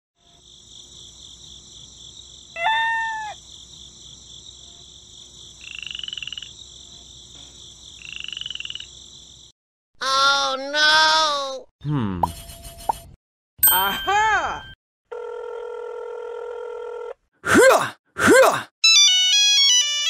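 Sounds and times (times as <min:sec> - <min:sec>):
high-pitched frog chorus: 0:02.5 - 0:03.6, 0:05.6 - 0:06.6, 0:08.0 - 0:09.2
trilling frog croaks: 0:05.6 - 0:06.6, 0:08.0 - 0:09.0.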